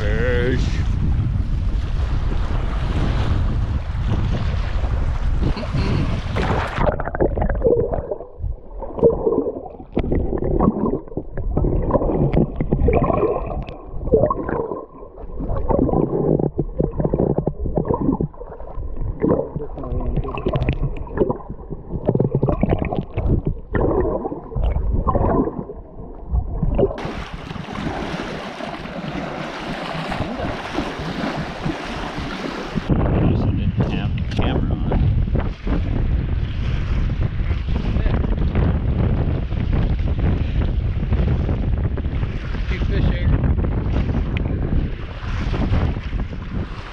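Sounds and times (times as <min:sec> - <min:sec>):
muffled underwater water sloshing: 0:00.0 - 0:33.1, 0:33.8 - 0:46.9
wind on microphone: 0:00.0 - 0:46.9
waves washing on rocks: 0:27.0 - 0:32.9.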